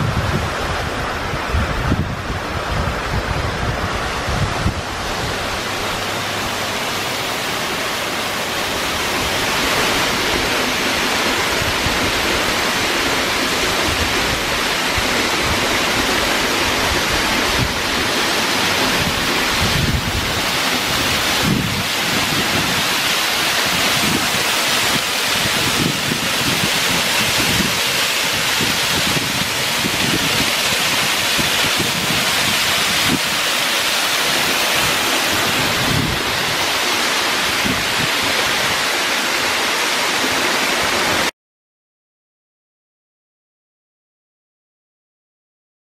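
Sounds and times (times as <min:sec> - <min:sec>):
waterfall rushing: 0:00.0 - 0:41.3.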